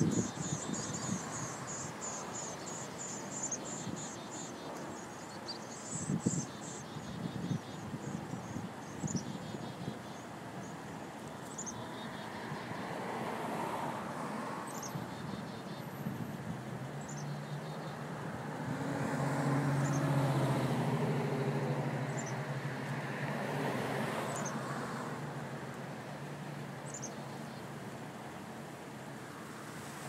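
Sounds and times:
background traffic: 0.0 - 30.0
vehicle passing: 18.3 - 25.4.

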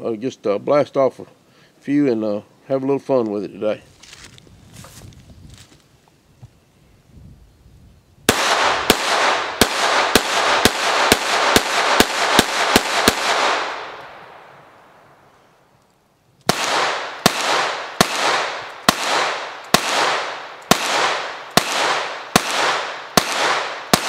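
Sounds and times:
pistol shots: 8.3 - 14.4, 16.5 - 24.0
gunshot echo: 8.3 - 14.5, 16.5 - 24.0.

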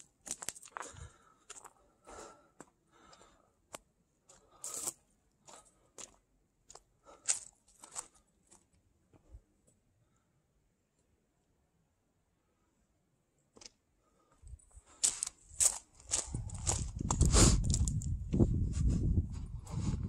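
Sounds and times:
footsteps crunching on gravel: 0.0 - 1.7, 4.3 - 8.6, 15.0 - 18.2.

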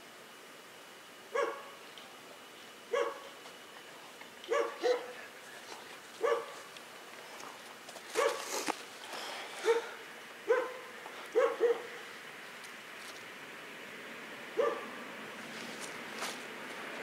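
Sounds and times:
dog barking: 1.3 - 1.8, 2.9 - 3.4, 4.5 - 5.2, 6.2 - 6.7, 8.2 - 8.5, 9.6 - 12.0, 14.6 - 14.9.

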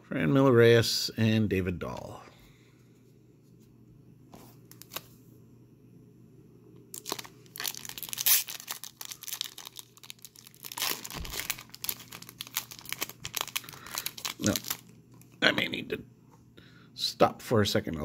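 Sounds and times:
foil wrapper tearing and crinkling: 6.9 - 15.0.

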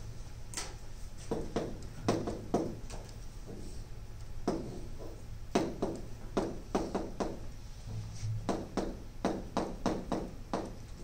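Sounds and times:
low room hum: 0.0 - 11.0
taps of writing on a board: 1.2 - 2.8, 4.4 - 7.5, 8.4 - 11.0.

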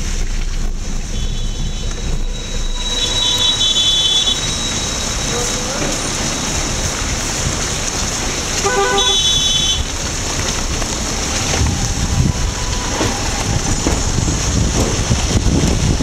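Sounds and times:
vehicle horn: 1.2 - 4.5, 8.6 - 9.9
car driving over rough road: 10.1 - 16.0.

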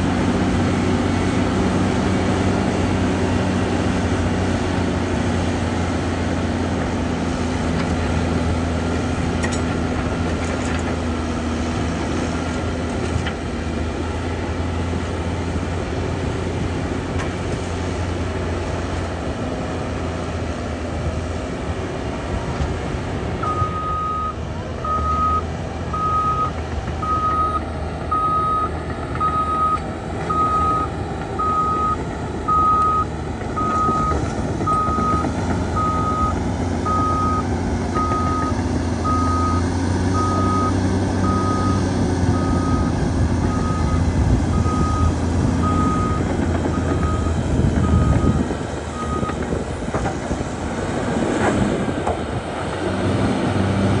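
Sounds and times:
bulldozer diesel engine: 0.0 - 54.0
reverse alarm beeping: 23.4 - 25.4, 26.0 - 39.6, 40.2 - 41.8, 42.4 - 48.4, 49.0 - 49.4.

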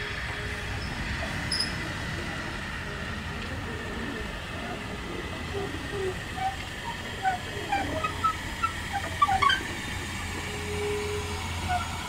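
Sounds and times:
steam locomotive rumbling: 0.0 - 12.0.

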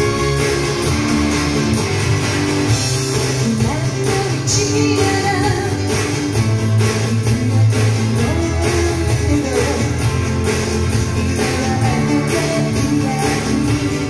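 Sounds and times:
live pop-rock band: 0.0 - 14.0
woman singing lead vocal: 3.2 - 14.0.

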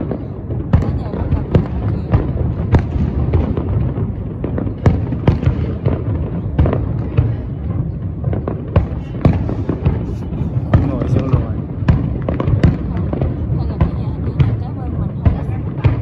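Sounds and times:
distant fireworks booming: 0.0 - 16.0.

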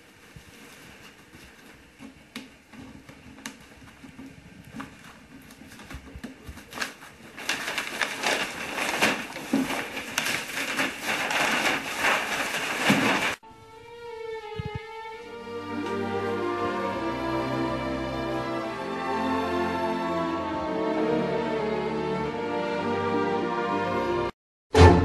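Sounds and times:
paper wrapping rustling and tearing: 3.6 - 13.4.

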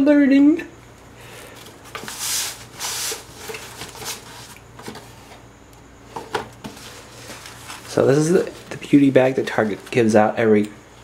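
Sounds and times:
cardboard box rustling scrapes: 1.9 - 5.4.

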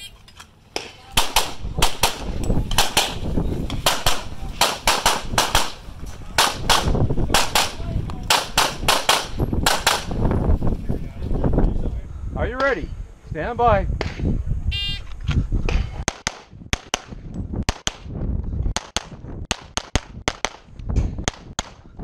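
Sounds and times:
rapid pistol shots: 1.2 - 3.2, 3.8 - 5.8, 6.4 - 10.2, 16.1 - 18.1.

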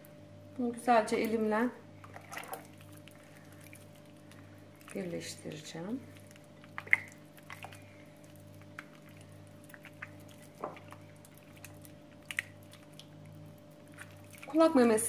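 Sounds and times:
steady low hum: 0.0 - 15.0
wet squelches and clicks: 2.0 - 15.0.

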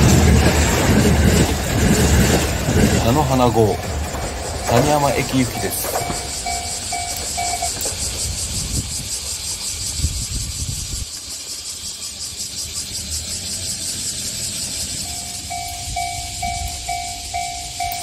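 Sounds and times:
level-crossing warning bell: 0.0 - 9.4, 13.7 - 18.0
diesel railcar rumble: 0.0 - 18.0.

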